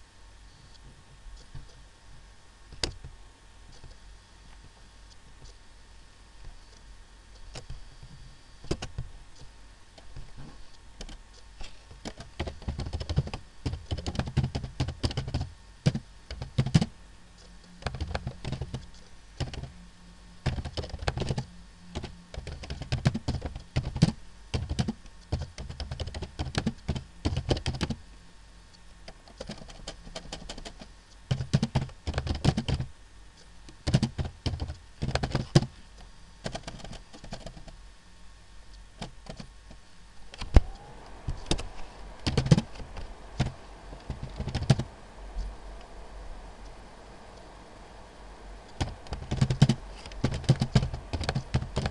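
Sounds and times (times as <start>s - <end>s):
keyboard typing: 7.4s - 9.0s, 12.0s - 16.9s, 17.7s - 19.7s, 20.4s - 28.0s, 29.2s - 32.9s, 33.8s - 35.7s, 36.4s - 37.8s, 39.0s - 39.5s, 40.3s - 44.9s, 48.7s - 51.9s.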